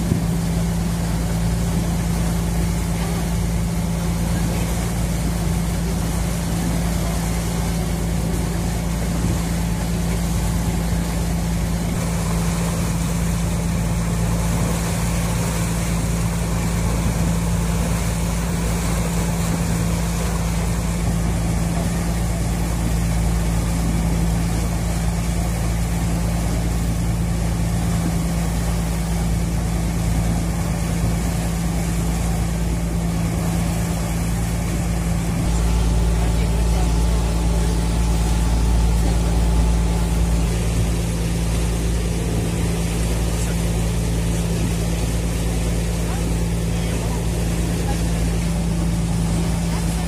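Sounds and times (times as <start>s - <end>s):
boat engine droning: 0.0s - 50.0s
rush of boat wake: 0.0s - 50.0s.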